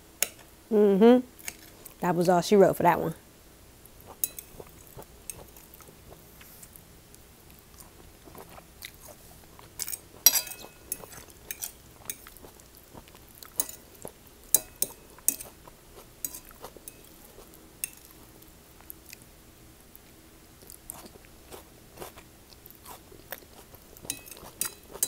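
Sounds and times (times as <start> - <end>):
person chewing food: 3.8 - 19.3, 19.9 - 25.0
metal fork clicking on plate: 14.5 - 15.5, 24.1 - 24.8.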